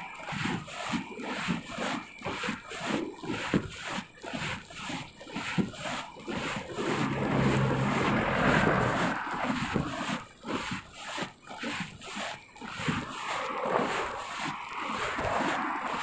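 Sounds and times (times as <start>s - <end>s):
wind buffeting microphone: 6.6s - 10.1s
truck engine passing: 6.7s - 9.8s.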